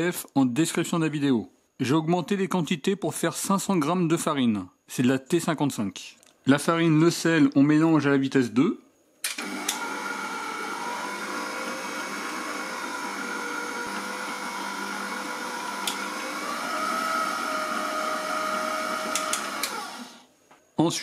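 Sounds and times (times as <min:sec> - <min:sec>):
stand mixer motor whine: 0:09.4 - 0:20.3.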